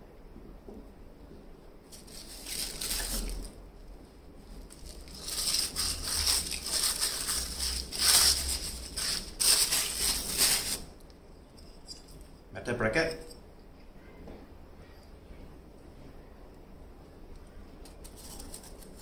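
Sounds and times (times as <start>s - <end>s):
tissue paper rustling: 1.9s - 3.6s, 4.4s - 10.9s.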